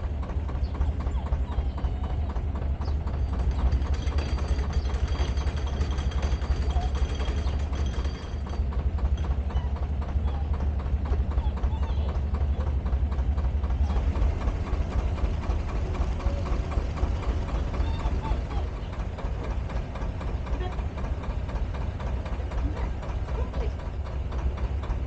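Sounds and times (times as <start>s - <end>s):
diesel engine idling: 0.0s - 25.0s.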